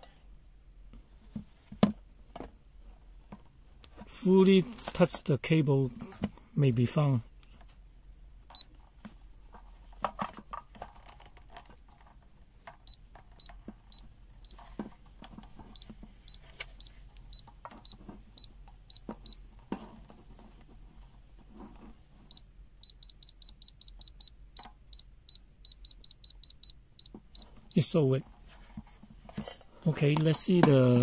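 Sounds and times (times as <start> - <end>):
multimeter buzzer beeping: 22.3 - 27.9
handling clicks and knocks: 29.2 - 31.0.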